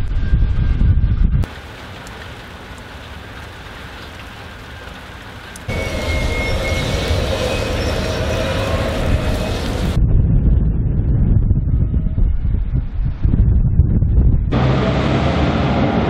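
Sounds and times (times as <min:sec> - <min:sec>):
low rumble: 0:00.0 - 0:01.5, 0:05.7 - 0:16.0
rain falling: 0:01.4 - 0:10.0
diesel locomotives running: 0:01.5 - 0:10.0, 0:14.5 - 0:16.0
steady whining tones: 0:05.4 - 0:10.0.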